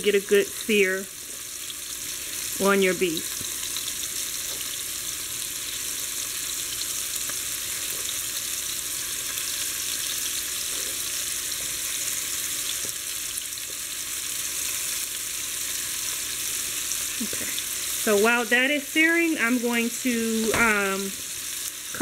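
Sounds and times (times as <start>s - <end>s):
meat sizzling in oil: 0.0s - 22.0s.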